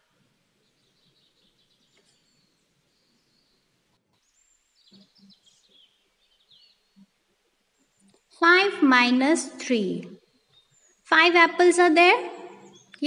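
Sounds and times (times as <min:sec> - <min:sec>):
faint bird chirps: 0:00.0 - 0:08.4.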